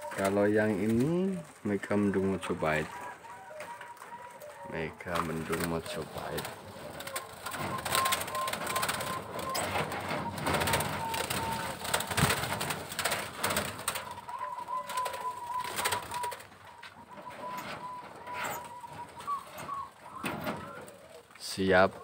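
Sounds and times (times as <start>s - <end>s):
doves cooing: 0.0s - 22.0s.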